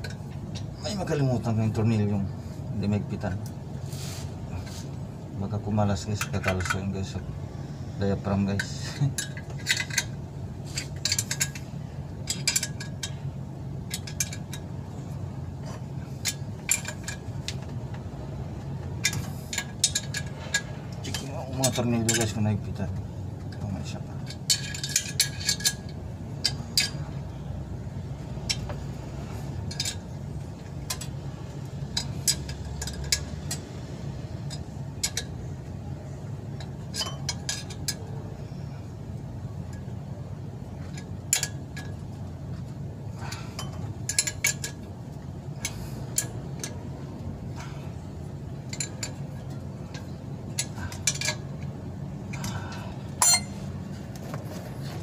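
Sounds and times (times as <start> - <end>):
wrench clicking on bolts: 10.8 - 13.2, 13.8 - 14.7, 19.0 - 23.6, 29.5 - 30.1, 31.8 - 33.7, 34.4 - 35.5, 43.6 - 44.9, 45.6 - 46.8, 48.6 - 53.6
low hum: 23.0 - 55.0.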